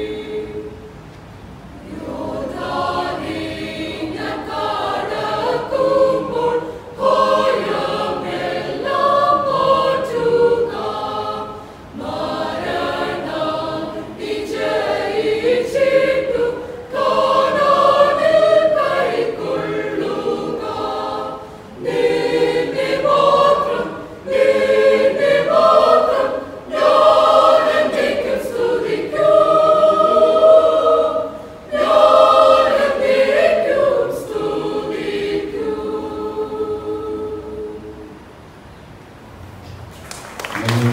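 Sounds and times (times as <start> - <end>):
choir singing: 0.0 - 1.0, 1.7 - 38.4.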